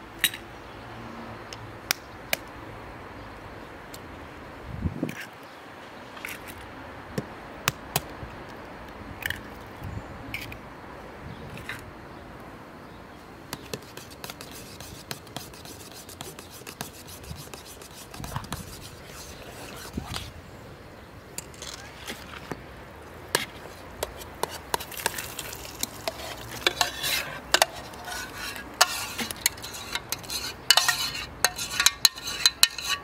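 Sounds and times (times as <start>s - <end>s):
scraping and rubbing handling: 13.6s - 20.4s, 21.4s - 22.7s, 23.3s - 33.0s.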